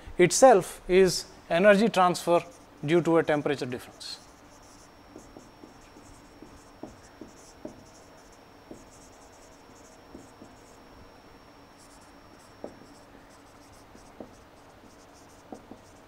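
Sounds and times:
marker scratching on whiteboard: 3.8s - 10.9s, 11.7s - 16.0s.

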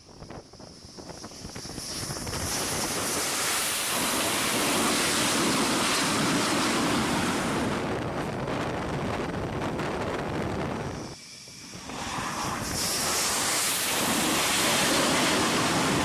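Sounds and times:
jet engine rushing: 0.0s - 16.0s.

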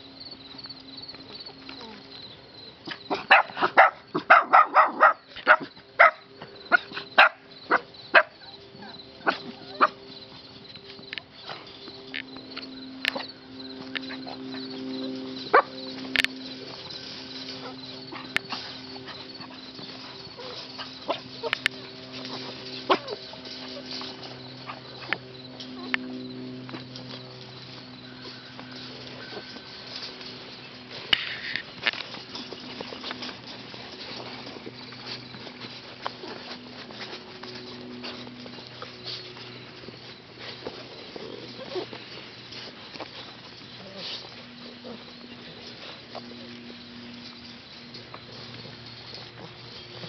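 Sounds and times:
faint steady hum: 0.0s - 50.0s
puppies yipping and barking: 0.0s - 50.0s
dog barking: 3.1s - 8.4s, 9.2s - 10.0s.

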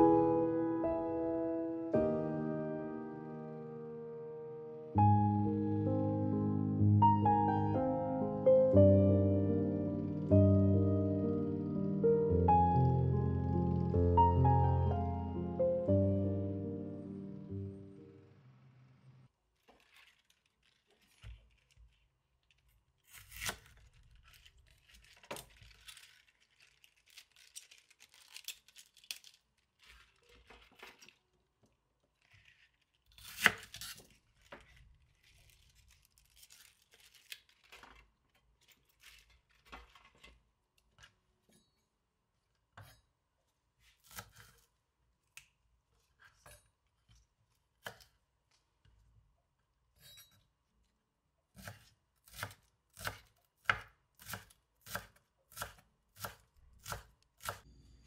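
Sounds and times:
leaves being torn by hand: 19.6s - 22.0s, 23.0s - 31.2s, 32.2s - 38.1s.

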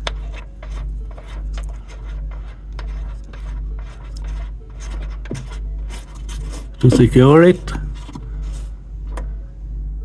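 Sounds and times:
pulsing low hum: 7.6s - 10.0s.

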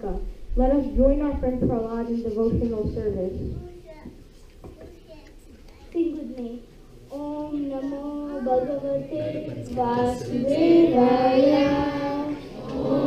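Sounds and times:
voices singing: 7.2s - 13.0s
child singing: 7.4s - 13.0s.

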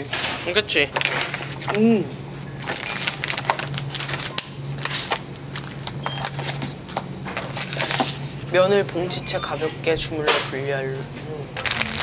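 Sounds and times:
steady low hum: 0.0s - 12.0s
plastic packaging crinkling: 2.6s - 6.6s, 11.6s - 12.0s.

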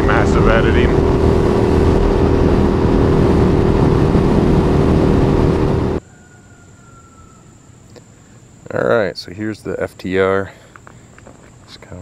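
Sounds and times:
motorcycle engine cruising: 0.0s - 6.0s
road noise: 0.0s - 6.0s
wind noise: 0.0s - 6.0s.

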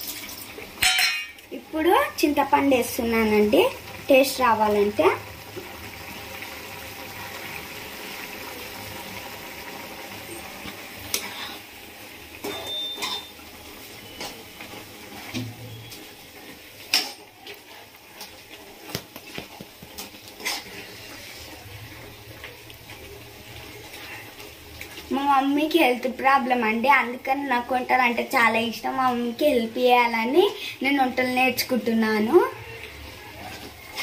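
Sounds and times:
curry bubbling: 0.0s - 34.0s
spatula scraping through curry: 19.8s - 21.6s.

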